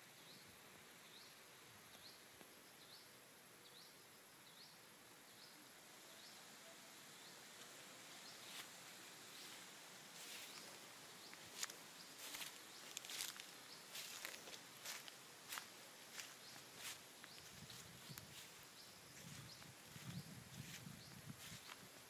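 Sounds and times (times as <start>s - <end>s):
footsteps through grass: 7.6s - 22.0s.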